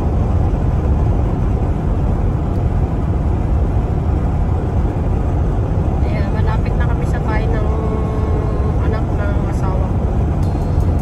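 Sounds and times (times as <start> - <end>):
engine drone: 0.0 - 11.0
tyres rumbling on wet road: 0.0 - 11.0.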